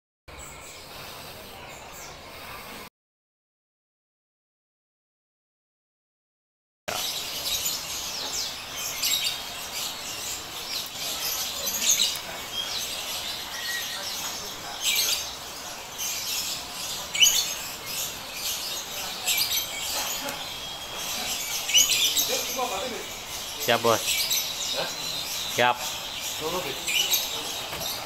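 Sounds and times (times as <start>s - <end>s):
small birds chirping: 0.3s - 2.9s, 6.9s - 28.0s.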